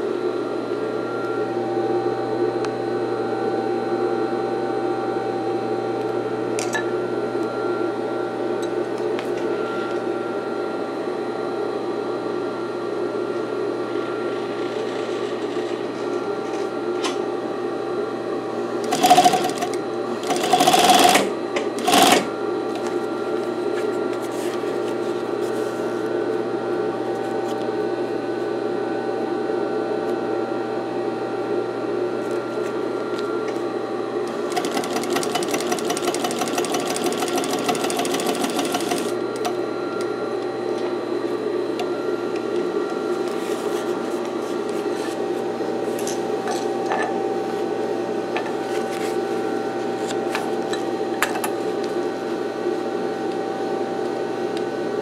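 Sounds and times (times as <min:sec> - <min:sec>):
sewing machine motor humming: 0:18.8 - 0:22.3, 0:34.2 - 0:39.6
sewing machine stitching bursts: 0:18.8 - 0:22.3, 0:34.5 - 0:39.1.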